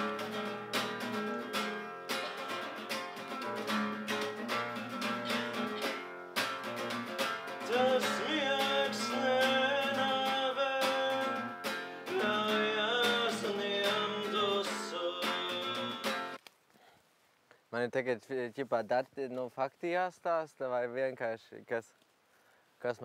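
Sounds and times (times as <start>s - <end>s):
person singing: 0.0s - 3.3s, 7.6s - 16.4s
acoustic guitar strumming: 0.0s - 16.4s.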